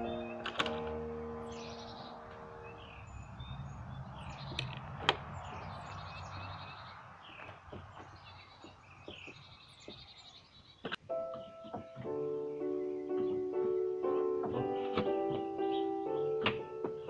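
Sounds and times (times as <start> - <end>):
low outdoor hum: 0.0 - 10.3
small birds chirping: 0.0 - 17.0.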